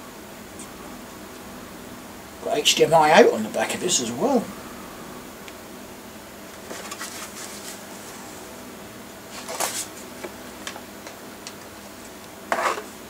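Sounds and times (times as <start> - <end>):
faint room hum: 0.0 - 13.0
rustling scrape: 6.6 - 8.5, 9.3 - 10.1, 12.5 - 13.0.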